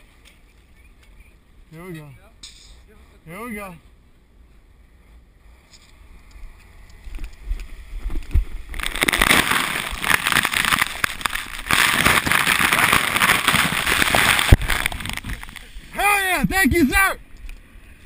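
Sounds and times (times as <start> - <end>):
splashing through muddy water: 8.7 - 15.8.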